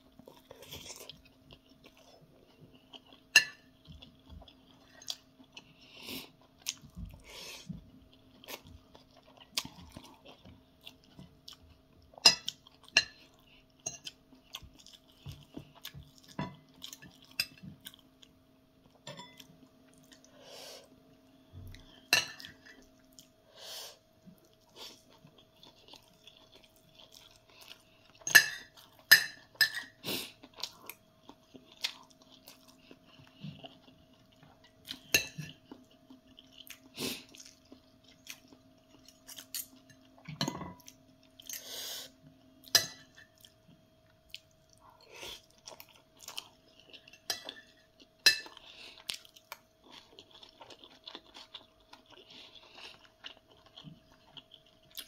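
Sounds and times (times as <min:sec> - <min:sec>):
person chewing: 0:00.1 - 0:20.9, 0:21.7 - 0:55.0
cutlery clinking on a plate: 0:19.0 - 0:19.5, 0:28.2 - 0:29.9, 0:42.7 - 0:43.3.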